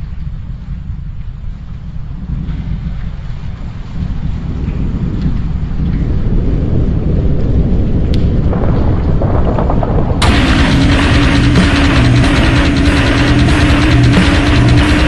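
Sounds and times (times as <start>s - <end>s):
dark rumbling noise: 0.0s - 15.0s
heavy band music: 10.2s - 15.0s
steady low drone: 10.2s - 15.0s.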